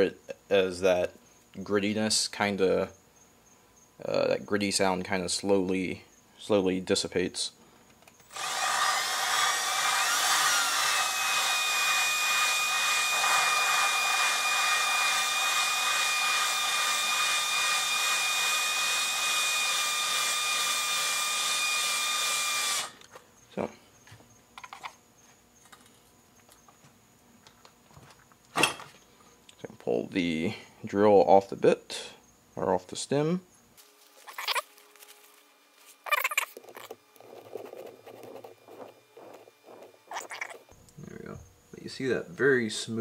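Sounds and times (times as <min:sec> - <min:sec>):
electric drill motor whine: 0:08.2 - 0:23.1, 0:33.8 - 0:40.8
gritty grinding of valve lapping: 0:36.2 - 0:40.7.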